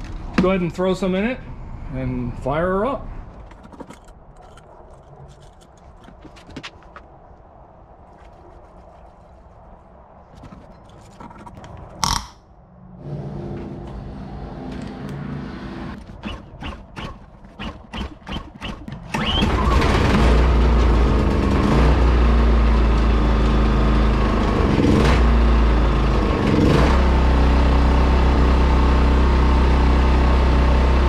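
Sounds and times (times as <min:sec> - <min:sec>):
hands handling generator controls: 0:03.3 - 0:07.2
sharp loud click: 0:12.0 - 0:12.5.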